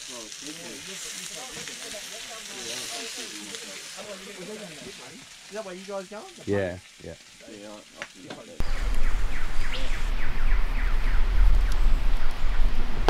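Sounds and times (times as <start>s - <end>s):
bird calling falling notes: 8.6s - 12.8s.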